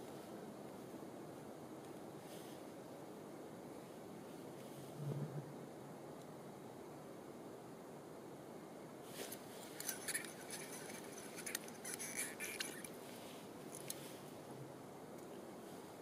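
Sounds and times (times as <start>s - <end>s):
faint steady hiss: 0.0s - 16.0s
plastic clicks and scraping: 9.8s - 12.9s.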